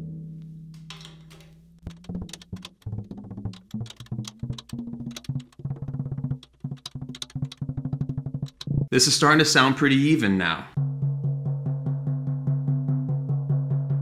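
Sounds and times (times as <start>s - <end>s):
felt mallet tapping snare drum: 1.9s - 8.9s.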